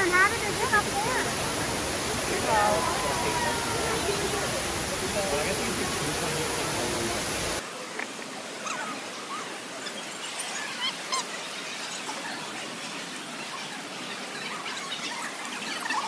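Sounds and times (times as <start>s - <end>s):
indoor waterfall rushing: 0.0s - 16.0s.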